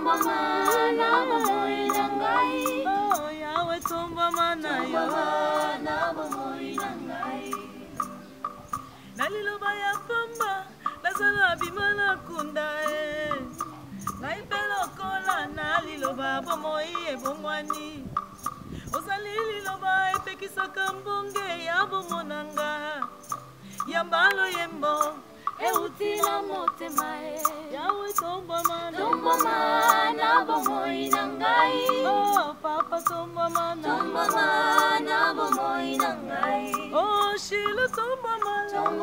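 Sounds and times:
choir singing: 0.0 - 8.0, 25.6 - 27.9, 28.6 - 32.6, 33.4 - 37.4, 38.4 - 39.0
woman singing with vibrato: 0.0 - 8.1, 9.1 - 18.2, 18.9 - 23.2, 23.8 - 39.0
held keyboard notes: 0.0 - 18.6, 22.1 - 39.0
ticking percussion: 0.0 - 39.0.

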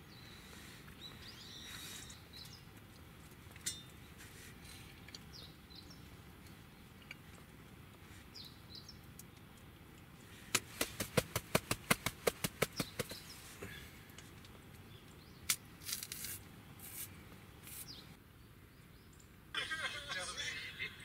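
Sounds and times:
sharp hand taps: 10.5 - 13.2
banana peel tearing rustles: 15.5 - 17.9.

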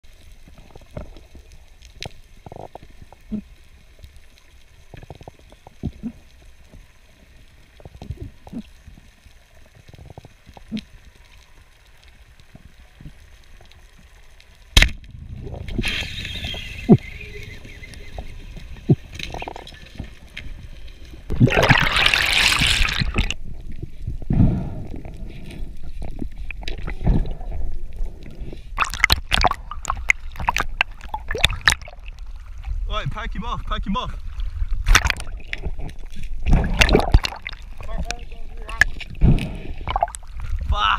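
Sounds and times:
faint underwater clicks: 0.1 - 21.9, 22.6 - 33.2, 34.1 - 40.7
churning water: 21.2 - 23.4, 28.7 - 40.9.

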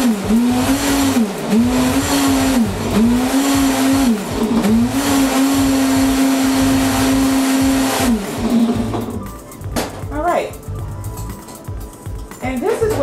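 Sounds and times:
blender motor crushing ice: 0.0 - 9.2.

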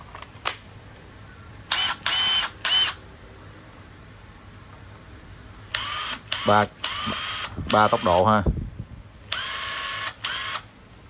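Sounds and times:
impact wrench motor whining: 1.7 - 3.0, 5.7 - 8.3, 9.3 - 10.7.

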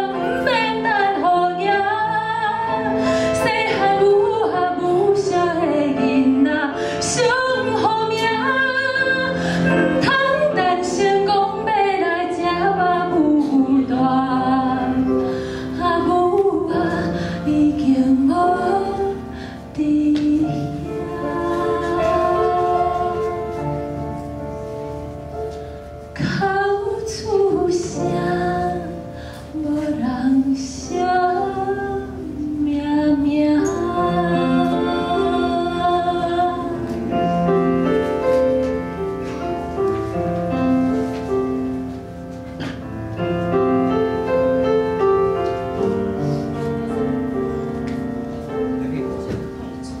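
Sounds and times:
woman singing with vibrato: 0.0 - 15.2, 15.8 - 23.8, 26.2 - 37.1
grand piano accompaniment: 0.0 - 50.0.

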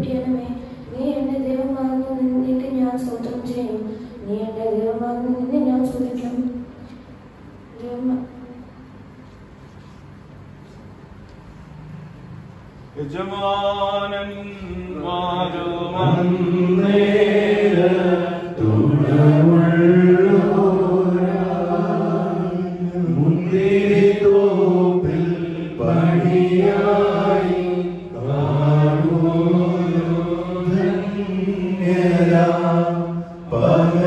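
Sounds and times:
man singing liturgical chant: 13.0 - 34.0.

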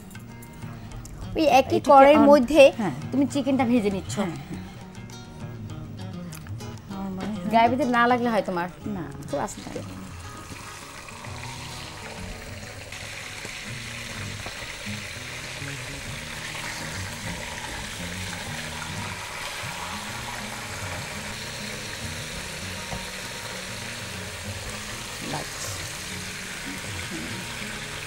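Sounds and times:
soft background music: 0.0 - 28.0
chicken sizzling in oil: 9.6 - 28.0.

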